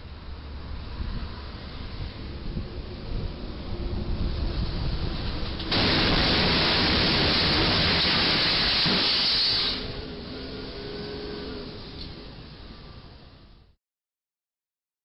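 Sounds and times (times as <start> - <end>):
truck crashing into bridge: 5.7 - 10.0.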